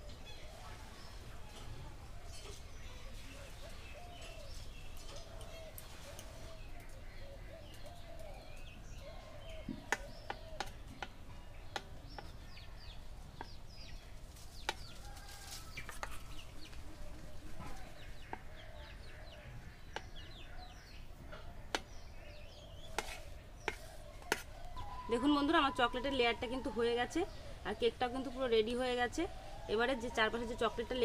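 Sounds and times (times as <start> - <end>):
birds calling and clucking: 0.0 - 31.0.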